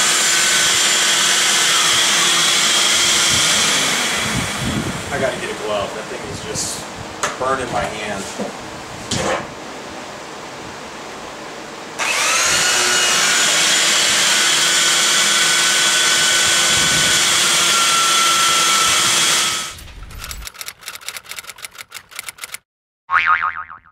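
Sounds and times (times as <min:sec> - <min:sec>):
belt sander sanding wood: 0:12.0 - 0:19.7
rapid irregular ticking: 0:20.3 - 0:22.6.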